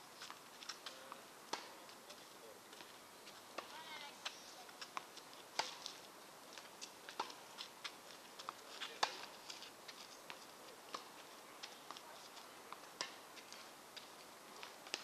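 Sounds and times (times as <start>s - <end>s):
tennis ball bouncing on court: 0.2s - 1.8s, 3.6s - 5.9s, 7.1s - 9.3s, 12.7s - 13.2s
tennis ball hitting rackets: 0.7s - 1.8s, 3.5s - 5.9s, 7.1s - 9.3s, 10.3s - 13.3s.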